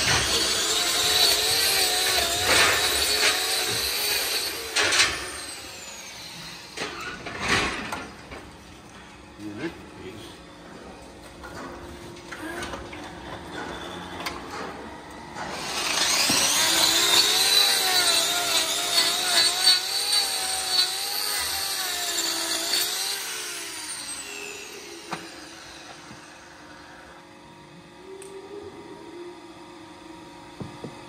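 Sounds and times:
angle grinder cutting hoof: 0.0 - 7.9, 15.4 - 26.5.

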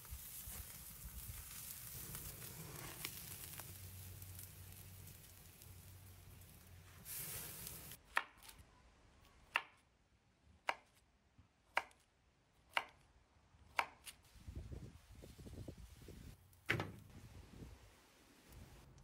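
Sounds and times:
steak sizzling on a grill: 0.0 - 8.0.

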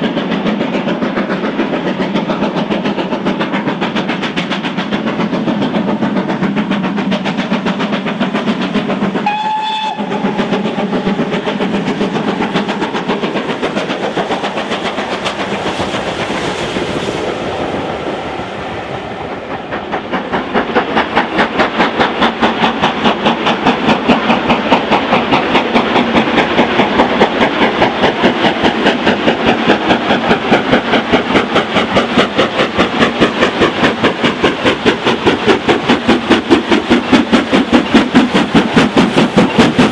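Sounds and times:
steam locomotive exhaust beating: 0.0 - 39.9
steam whistle blast: 9.2 - 10.3.

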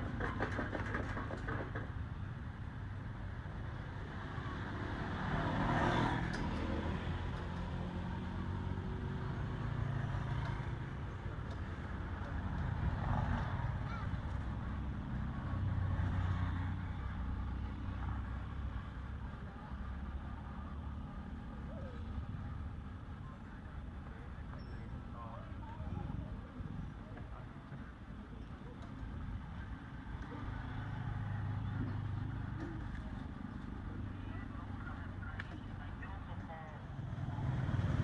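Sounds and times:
road traffic rumble: 0.0 - 38.0
vehicle passing: 4.1 - 21.1, 29.0 - 38.0.

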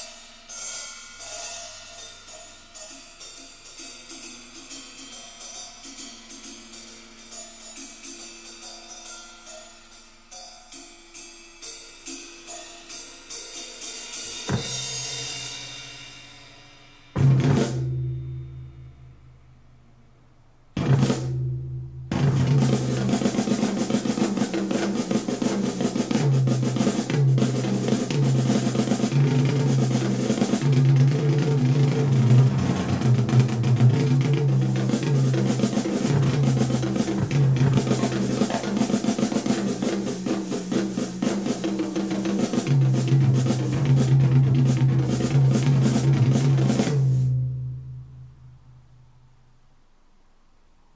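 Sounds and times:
drum music with bass line: 14.2 - 15.8, 20.8 - 47.3.

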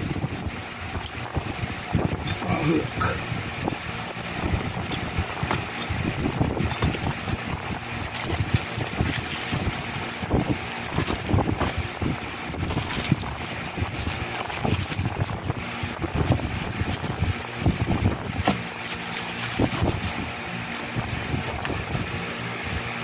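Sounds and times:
packaging and cardboard rustling: 8.1 - 10.1, 12.6 - 17.4, 18.4 - 20.2.

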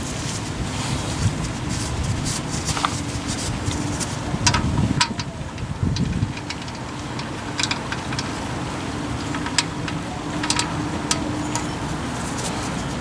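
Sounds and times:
low background rumble: 0.0 - 13.0
light metallic clicks: 2.6 - 13.0.

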